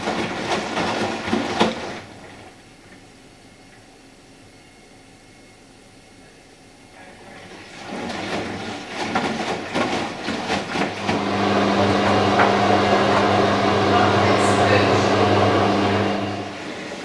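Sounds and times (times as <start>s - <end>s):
washing machine drum sloshing: 0.0s - 2.6s, 7.4s - 17.0s
loud machine hum: 11.0s - 17.0s.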